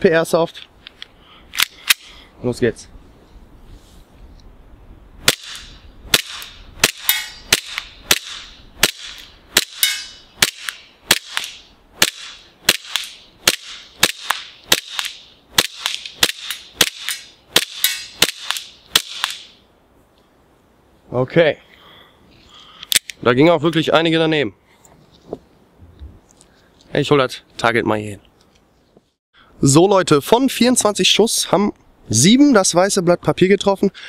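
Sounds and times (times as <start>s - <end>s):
airsoft pistol shots: 5.2s - 19.5s.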